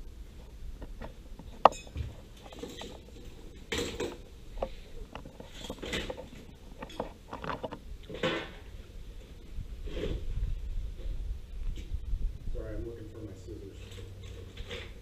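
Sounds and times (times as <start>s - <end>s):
tools clattering on workbench: 1.6s - 4.2s
rustling scrapes: 9.5s - 12.0s.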